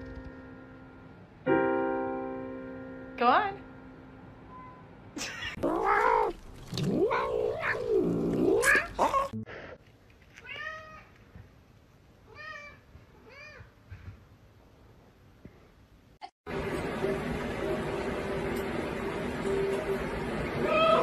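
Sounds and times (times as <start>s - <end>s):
cat yowling: 5.2s - 6.4s, 7.0s - 9.4s, 20.6s - 21.0s.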